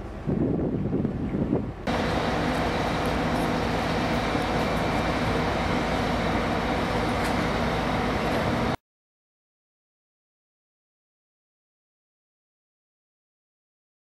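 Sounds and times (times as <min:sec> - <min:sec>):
steady mechanical hum: 0:00.0 - 0:08.8.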